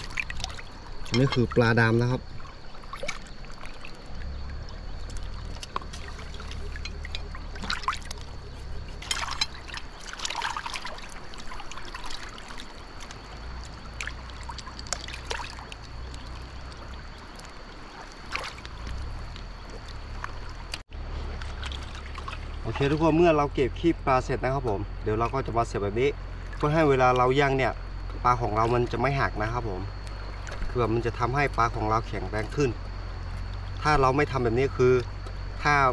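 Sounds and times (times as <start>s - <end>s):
scrapes and splashes cleaning fish: 0.0s - 23.3s
water trickling: 0.0s - 35.9s.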